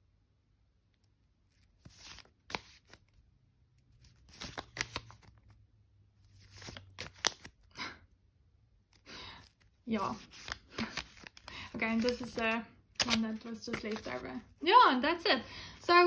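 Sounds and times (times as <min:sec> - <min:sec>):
sticker sheets rustling: 0:01.4 - 0:03.2, 0:03.8 - 0:05.6, 0:06.2 - 0:07.6, 0:09.3 - 0:16.0
paper snaps: 0:04.1 - 0:05.3, 0:06.5 - 0:07.6, 0:10.1 - 0:14.2.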